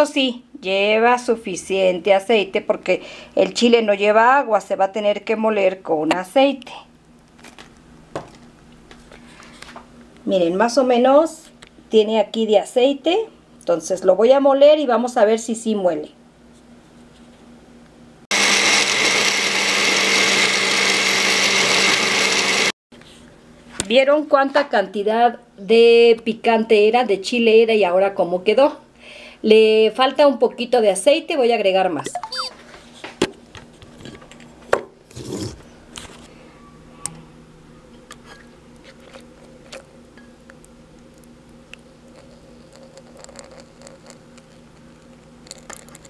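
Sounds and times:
blender grinding: 18.3s - 22.8s
faint steady hum: 35.6s - 46.0s.

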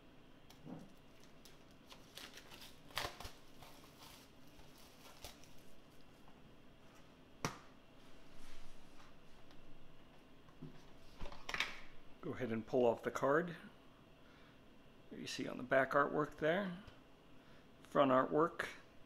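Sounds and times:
plastic wrap snapping: 0.5s - 3.9s
plastic wrap crinkling: 0.5s - 6.2s.

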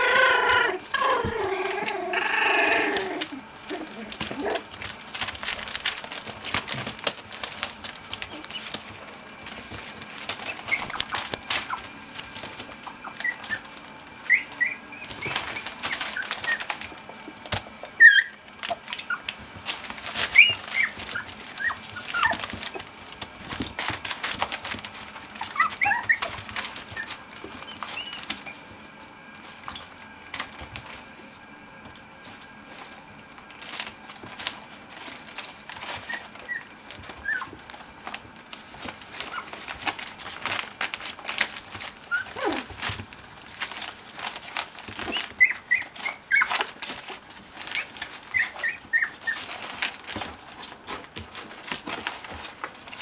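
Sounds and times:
puppies squeaking and yipping: 0.0s - 9.0s, 9.9s - 28.8s, 34.7s - 37.7s, 39.1s - 40.5s, 41.7s - 43.0s, 43.6s - 50.2s
paws scratching on newspaper: 0.0s - 53.0s.

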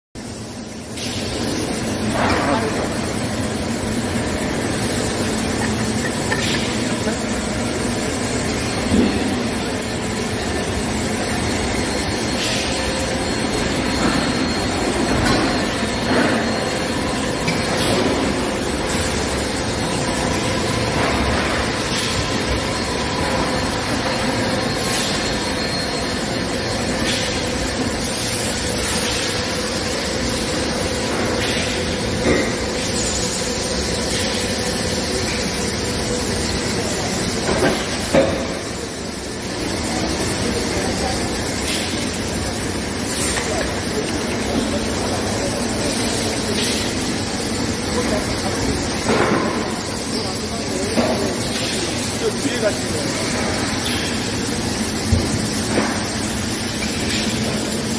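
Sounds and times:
machinery drone: 0.4s - 57.9s
machine clanks: 0.7s - 57.9s.

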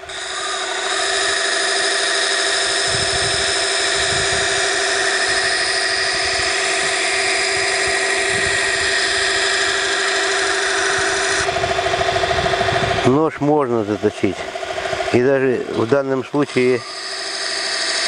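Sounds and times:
belt grinder motor whine: 0.0s - 18.0s.

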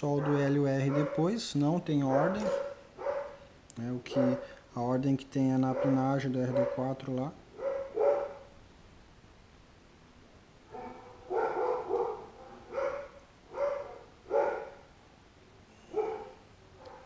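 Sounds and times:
dogs barking: 0.0s - 1.4s, 2.0s - 3.5s, 4.1s - 4.6s, 5.6s - 8.5s, 10.7s - 14.9s, 15.9s - 17.0s.

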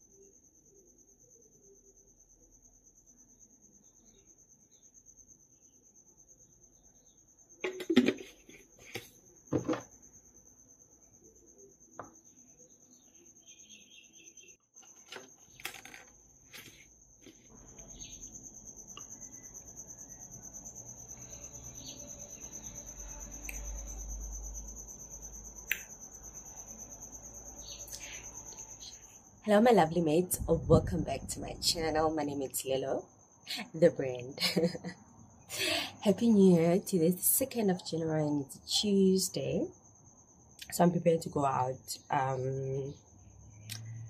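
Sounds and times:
glassware knocking on countertop: 9.5s - 9.8s
low hum: 28.4s - 32.4s.

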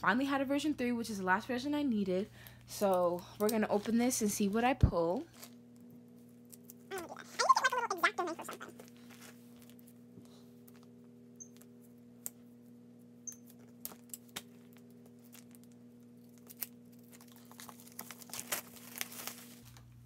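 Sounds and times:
plastic wrapping crinkling: 13.5s - 20.0s.

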